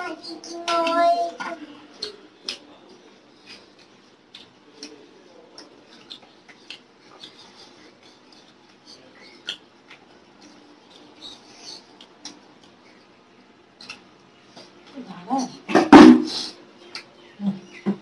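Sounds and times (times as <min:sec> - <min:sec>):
chewing and mouth sounds: 0:03.4 - 0:13.2, 0:13.8 - 0:14.7.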